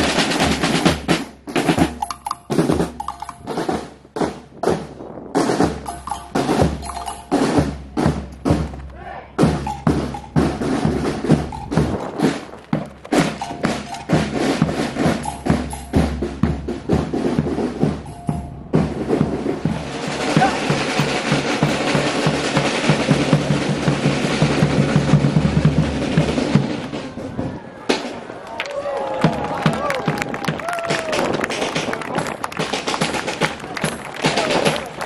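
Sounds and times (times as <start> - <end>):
bass drum: 9.4 - 25.8.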